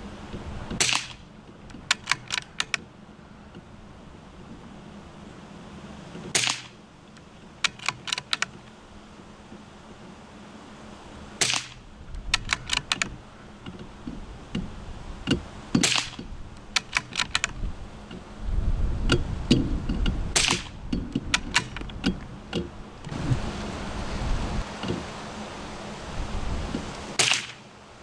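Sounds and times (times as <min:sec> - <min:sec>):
sharp clicks: 0:00.7 - 0:02.9, 0:06.3 - 0:08.7, 0:11.4 - 0:18.2, 0:19.1 - 0:23.2
rifle shots: 0:00.8 - 0:01.2, 0:06.3 - 0:06.8, 0:11.4 - 0:11.8, 0:15.8 - 0:16.2, 0:20.4 - 0:20.7, 0:27.2 - 0:27.6.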